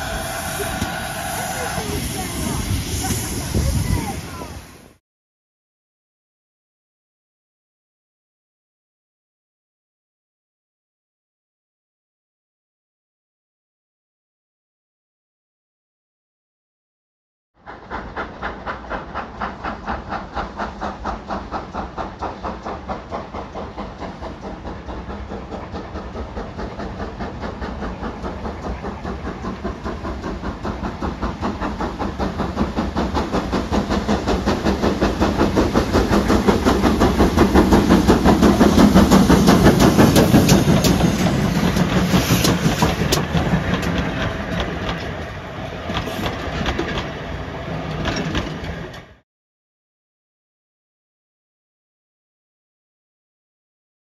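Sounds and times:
steam locomotive exhaust beating: 0.0 - 5.0, 17.6 - 49.2
wheels clicking over rail joints: 18.5 - 49.2.

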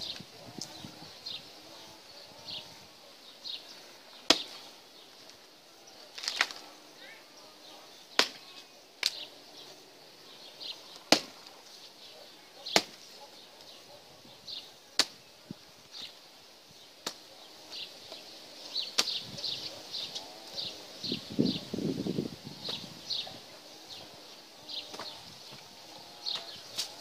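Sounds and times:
hatchet chopping firewood: 4.3 - 4.6, 8.2 - 9.2, 11.0 - 11.5, 12.8 - 13.1, 15.0 - 15.2, 17.0 - 17.3, 18.9 - 19.2, 24.9 - 25.1.

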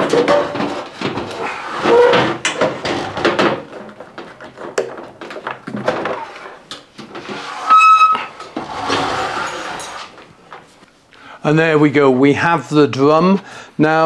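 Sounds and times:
short high squeal: 7.5 - 8.4.

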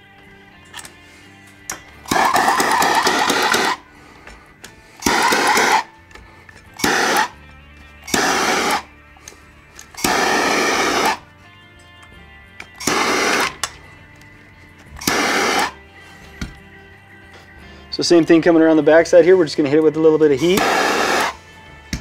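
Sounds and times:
soft background music: 0.0 - 22.0
heat gun blowing: 2.0 - 7.4, 8.0 - 11.3, 12.7 - 13.8, 15.0 - 16.3, 20.4 - 22.0.

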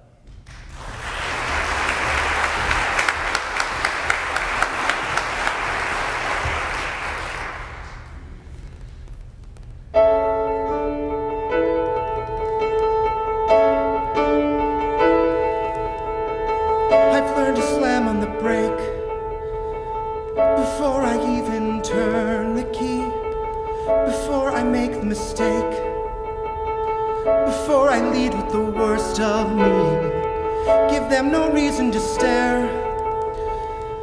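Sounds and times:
audience applause: 0.3 - 8.3
grand piano playing chords: 9.8 - 34.0.

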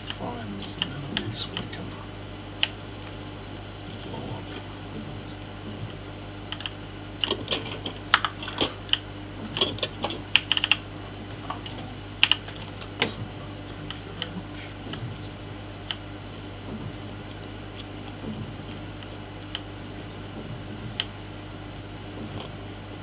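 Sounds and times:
mechanical keyboard keys clicking: 9.6 - 10.8.

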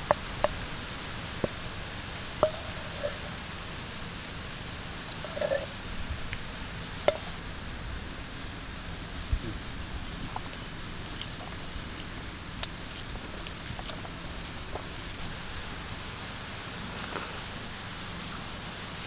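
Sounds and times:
outdoor background hiss: 0.0 - 19.0
hand mixing food on plate: 10.0 - 15.7.

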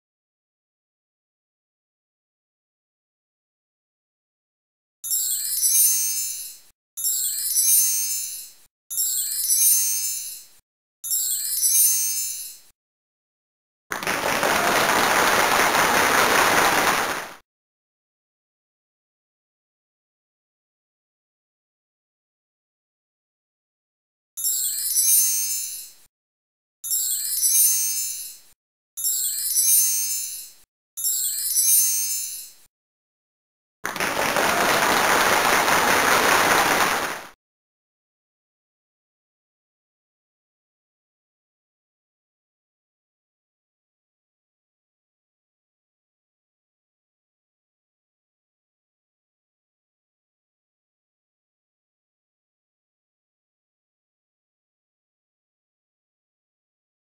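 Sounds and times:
sparkly chime sound effects: 5.0 - 12.7, 24.4 - 26.1, 26.9 - 28.4, 29.0 - 32.7
canned applause: 13.9 - 17.4, 33.8 - 37.4.

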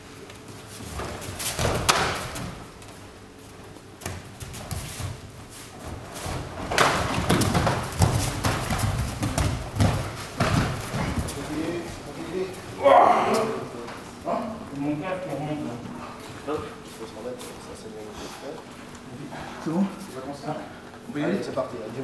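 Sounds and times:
bare feet stamping on mats: 0.8 - 2.7, 4.0 - 12.1.

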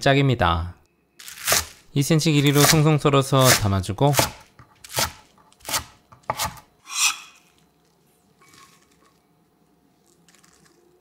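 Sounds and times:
knife slicing onto cutting board: 5.6 - 7.5
faint rustling of chives: 7.4 - 11.0.

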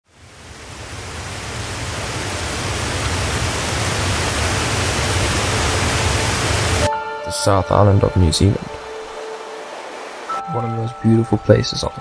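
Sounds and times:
steady rushing noise: 0.1 - 6.9.

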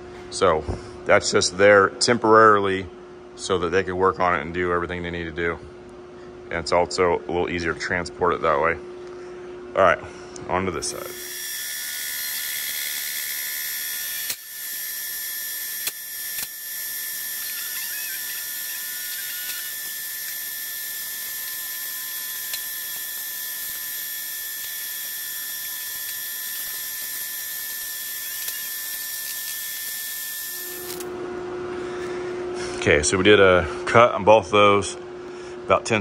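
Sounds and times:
lower steady machine hum: 0.0 - 36.0
boring machine high-pitched whine: 6.6 - 33.4
machine clicks: 17.3 - 31.1.

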